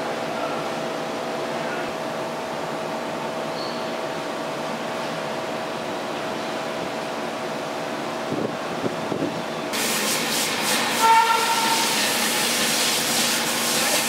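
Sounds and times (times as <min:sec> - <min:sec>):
loud even hiss: 0:09.7 - 0:14.0.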